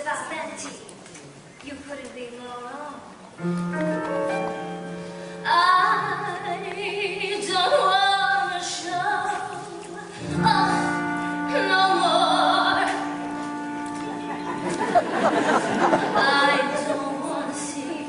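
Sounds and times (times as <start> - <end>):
woman singing operatically: 5.4 - 13.2, 16.0 - 18.0
band sustained chords: 10.2 - 17.6.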